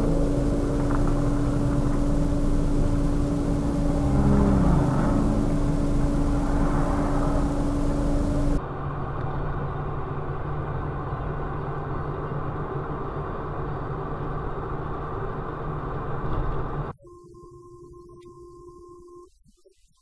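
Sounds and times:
low hum: 0.0 - 8.6
quiet steady tone: 0.0 - 8.6, 17.0 - 19.8
car engine and tyre noise: 0.0 - 16.9.

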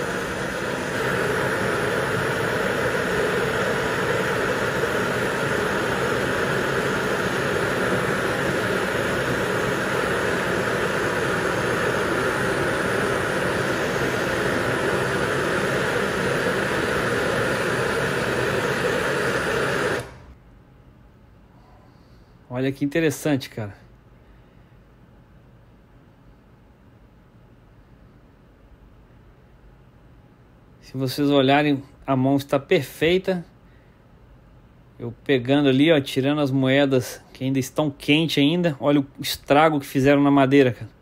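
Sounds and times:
gas torch flame hissing: 0.0 - 20.4.

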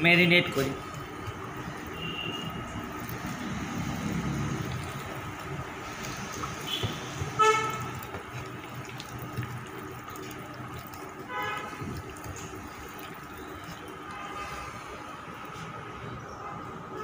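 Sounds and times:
hands squishing wet batter: 0.5 - 15.9.

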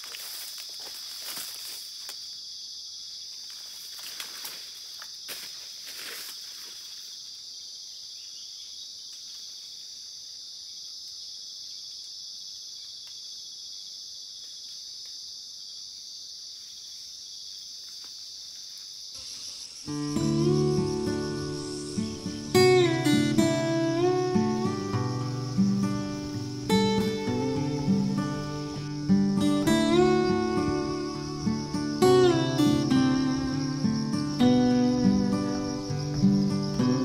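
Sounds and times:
footsteps rustling through undergrowth: 0.0 - 2.5, 3.1 - 7.5
insects droning: 0.0 - 37.0.

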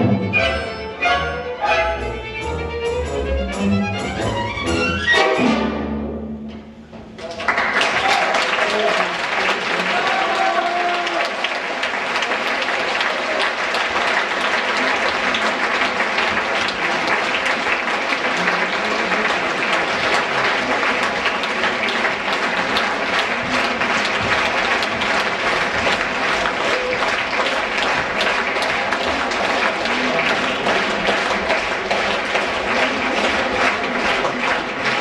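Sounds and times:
audience applauding: 7.2 - 35.0.

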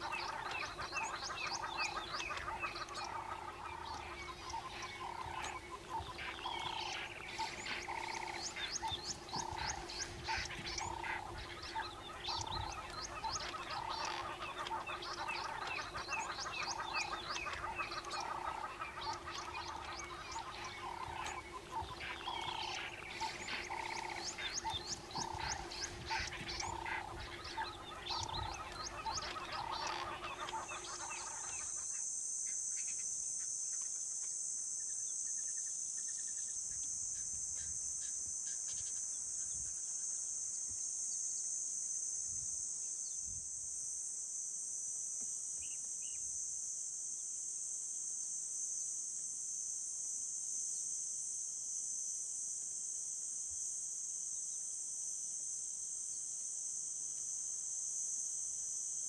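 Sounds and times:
chorus of wildlife calls: 0.0 - 34.0
high-pitched insect drone: 0.0 - 59.0.

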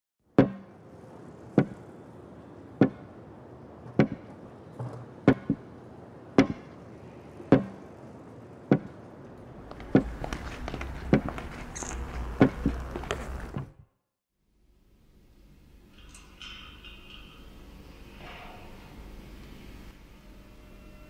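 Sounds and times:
sharp knocks: 0.4 - 0.8, 1.6 - 1.8, 2.8 - 3.1, 3.9 - 5.7, 6.4 - 6.8, 7.5 - 7.8, 9.7 - 13.7
low rumble: 9.4 - 13.8.

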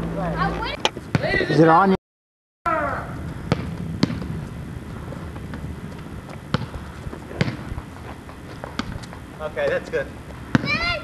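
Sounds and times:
basketball bouncing on asphalt: 0.8 - 1.4, 3.2 - 11.0.

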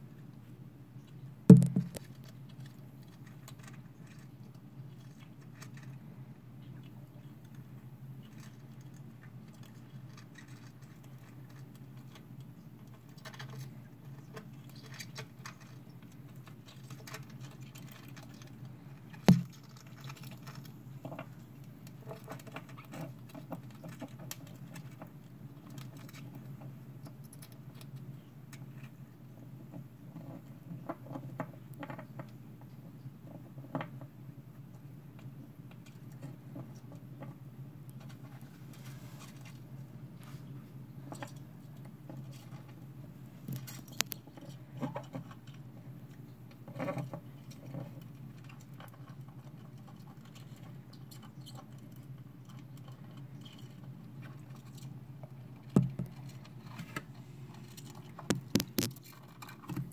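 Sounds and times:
crabs clicking and scratching: 0.0 - 59.9
sharp knock: 1.5 - 2.0.

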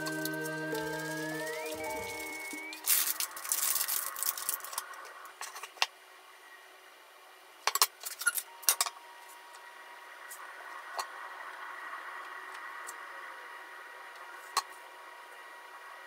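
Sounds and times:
plastic packaging crinkling: 0.0 - 5.1.

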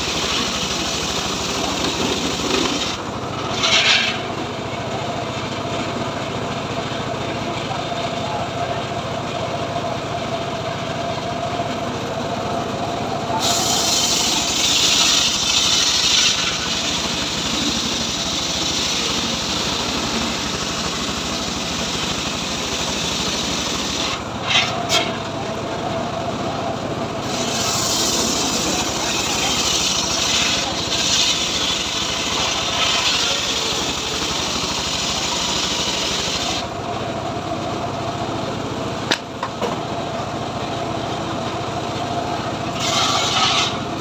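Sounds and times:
saw blade whining: 0.0 - 4.5, 13.2 - 25.3, 27.2 - 36.7, 42.6 - 44.0
sawbench engine running: 0.0 - 44.0
saw blade ripping through log: 42.8 - 43.8.

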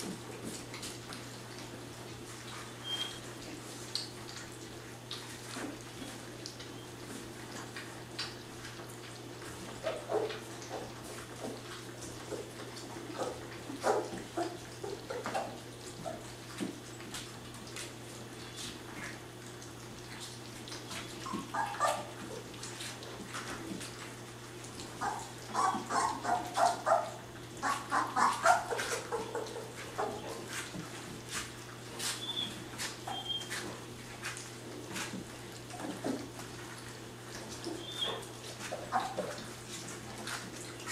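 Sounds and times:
puppies lapping and slurping: 0.0 - 40.9
high puppy yips: 21.1 - 22.1, 25.0 - 29.4, 32.1 - 33.6, 37.7 - 38.3.

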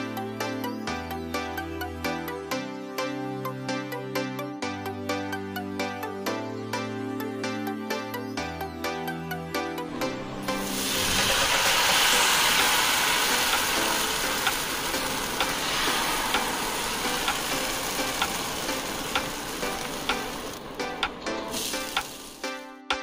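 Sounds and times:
batter sizzling in a hot pan: 10.5 - 20.6, 21.5 - 22.5.

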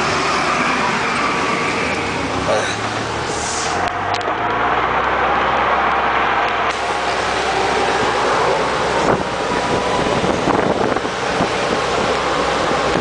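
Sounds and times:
golf cart running: 0.0 - 13.0
wind buffeting microphone: 6.7 - 13.0.

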